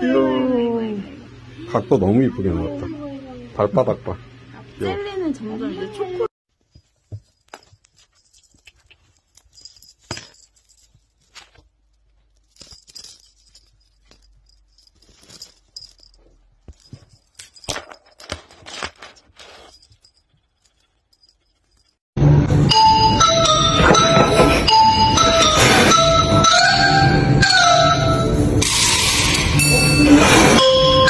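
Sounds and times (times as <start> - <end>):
faint clicks and rustles: 6.5 - 22.0
background music with held notes: 22.4 - 28.6.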